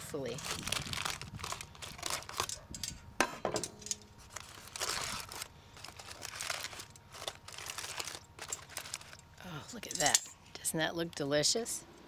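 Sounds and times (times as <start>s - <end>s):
foil crinkling: 0.0s - 2.8s, 3.8s - 10.2s.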